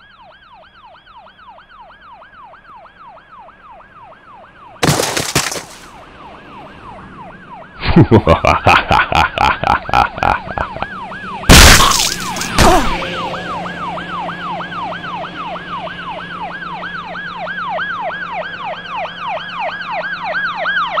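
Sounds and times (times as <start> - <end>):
sharp cracks: 4.8 - 5.9, 11.5 - 13.0
siren yelping: 10.3 - 21.0.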